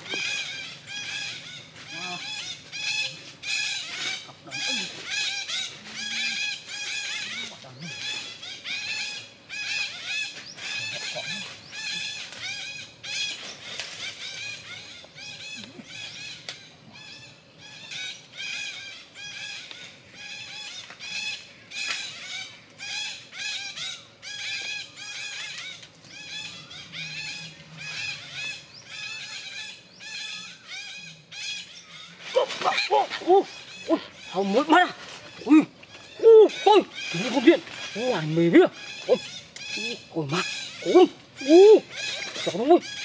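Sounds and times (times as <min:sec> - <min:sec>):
parakeets chattering: 0:20.2 - 0:43.0.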